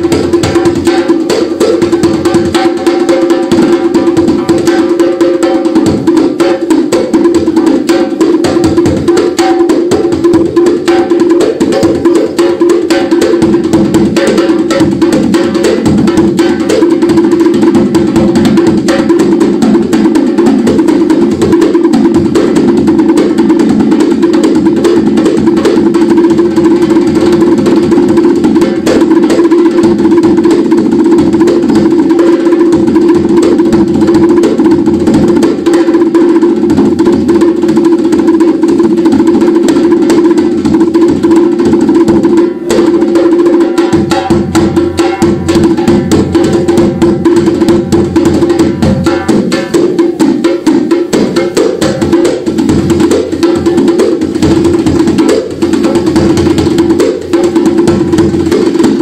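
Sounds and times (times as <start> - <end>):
rapid dense drumming: 0.0 - 59.0.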